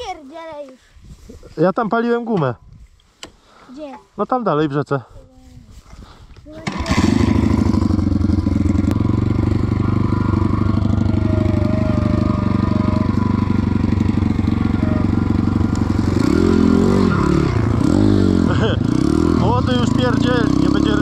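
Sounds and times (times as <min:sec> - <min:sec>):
small motorbike engine idling and revving: 0:06.5 - 0:21.0.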